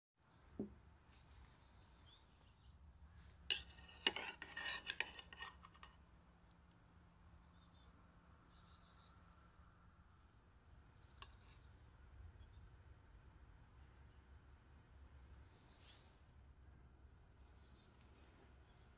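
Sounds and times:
small bird chirping: 0.2 - 4.0, 5.6 - 13.1, 14.9 - 18.9
metal spoon scraping a dish: 3.4 - 6.1, 11.0 - 11.8.

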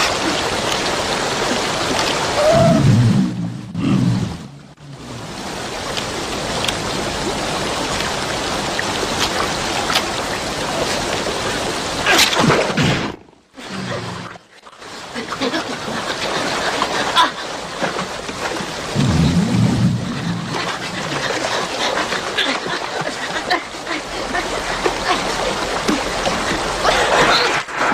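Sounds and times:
low animal growl: 2.6 - 5.0
loud splash: 18.8 - 21.6.

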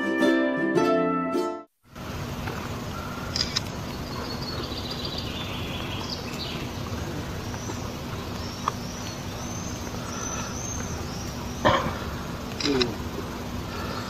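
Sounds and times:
outdoor background rumble: 1.9 - 14.0
small birds chirping: 2.4 - 14.0
short sharp clicks: 12.5 - 12.9.

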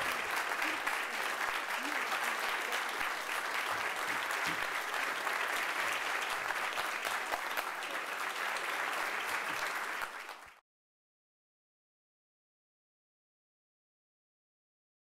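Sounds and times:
audience applauding: 0.0 - 10.6.

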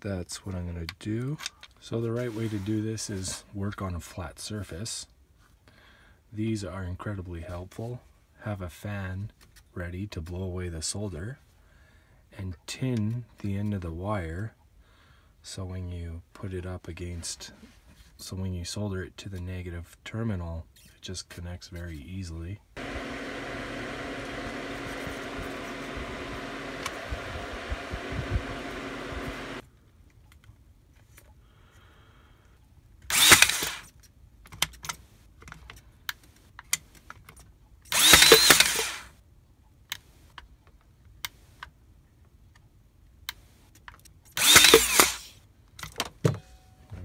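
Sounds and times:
fan hum: 22.8 - 29.6
nailer motor whining: 22.8 - 29.6, 33.1 - 33.9, 37.9 - 39.1, 44.4 - 45.3.

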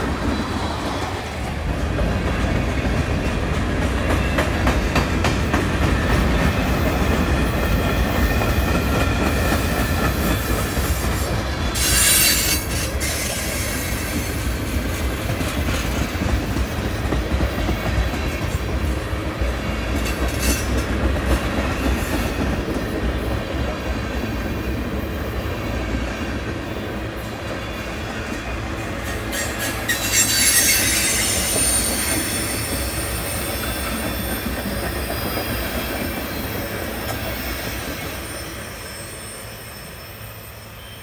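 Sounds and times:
train wheels rumbling on rail: 0.0 - 41.0
high wheel squeal: 11.2 - 14.4, 29.2 - 36.6, 37.2 - 41.0.

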